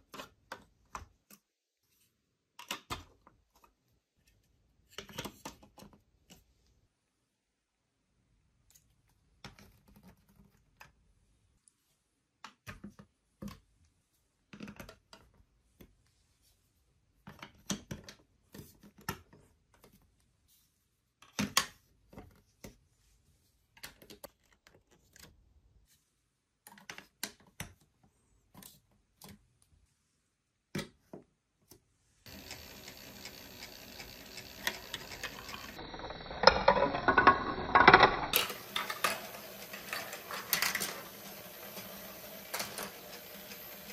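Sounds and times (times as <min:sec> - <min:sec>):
plastic balls rolling down track: 0:32.3 - 0:43.9
plastic toy blocks clicking: 0:32.3 - 0:43.9.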